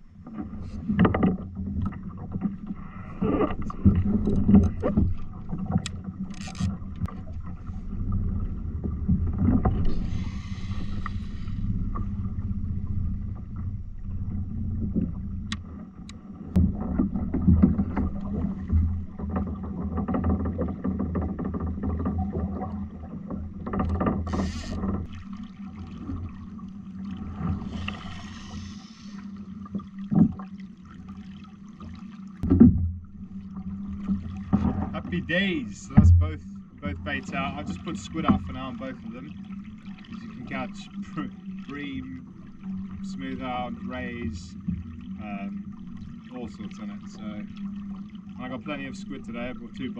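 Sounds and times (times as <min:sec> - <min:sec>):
steady low hum: 0:00.0 - 0:49.9
fishing rods and reels handled: 0:05.7 - 0:07.1, 0:23.7 - 0:25.1.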